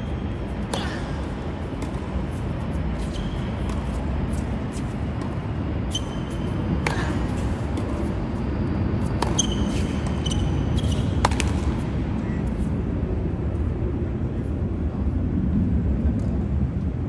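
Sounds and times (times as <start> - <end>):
steady low rumble: 0.0 - 17.0
racket striking tennis ball: 0.6 - 4.0, 6.0 - 8.0, 9.2 - 11.8
tennis ball bouncing: 0.6 - 8.1, 9.0 - 11.8
tennis shoes squeaking: 1.8 - 8.1, 9.0 - 11.6.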